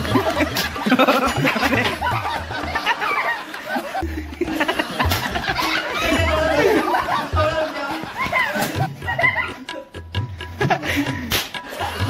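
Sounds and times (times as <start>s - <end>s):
people laughing: 0.0s - 12.0s.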